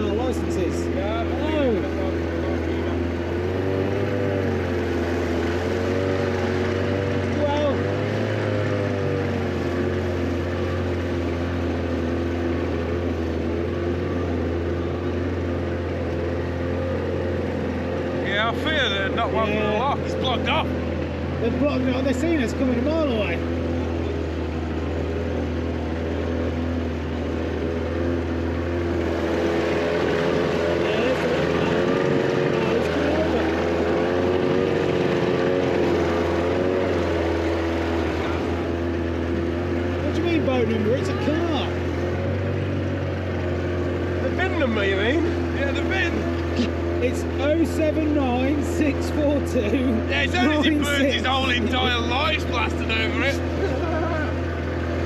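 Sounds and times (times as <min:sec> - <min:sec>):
boat engine droning: 0:00.0 - 0:55.0
outboard motor running: 0:00.0 - 0:55.0.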